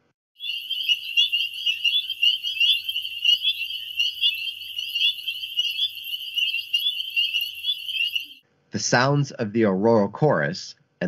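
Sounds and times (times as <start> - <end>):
frogs peeping: 0.4 - 8.4.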